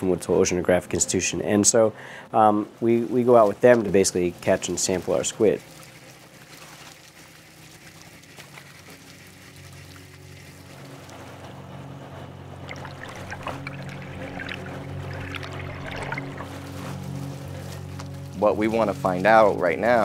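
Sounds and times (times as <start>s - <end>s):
water pouring off a net: 4.2s - 11.4s, 12.6s - 17.9s
low hum: 8.0s - 20.0s.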